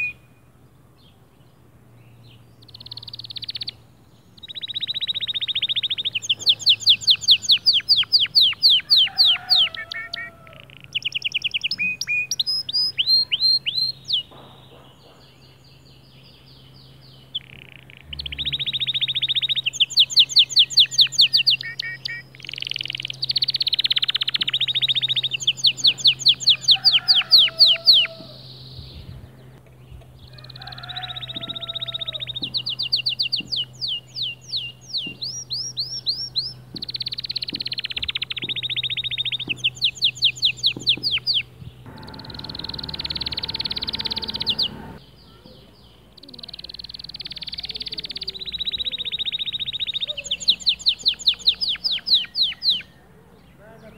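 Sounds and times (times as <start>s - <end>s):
canary singing trills: 0.0s - 1.1s, 2.2s - 53.9s.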